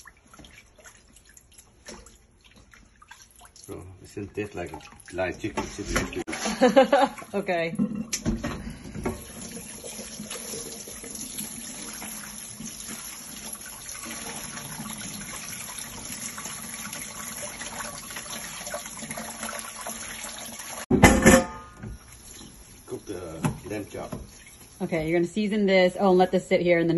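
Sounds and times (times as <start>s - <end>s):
tap water splashing into sink: 8.1s - 21.1s, 23.3s - 24.8s.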